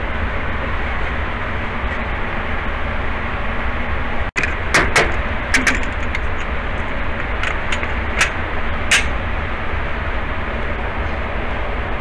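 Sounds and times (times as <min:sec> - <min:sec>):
ventilation rushing: 0:00.0 - 0:12.0.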